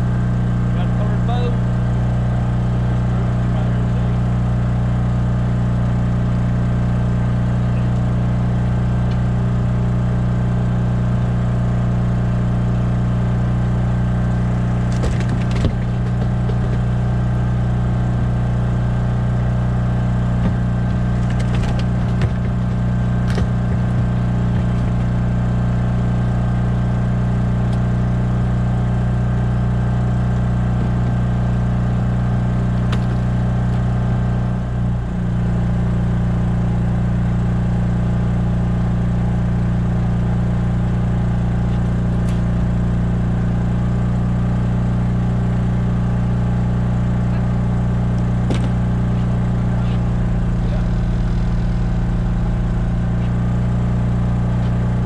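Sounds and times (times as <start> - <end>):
small engine droning: 0.0 - 55.0
gear knocking on boat deck: 14.8 - 25.7, 48.2 - 53.2.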